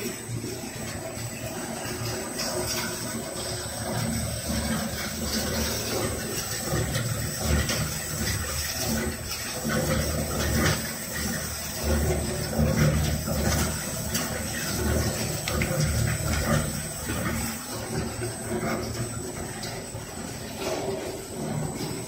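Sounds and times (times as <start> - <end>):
onion slicing machine running: 0.0 - 22.0.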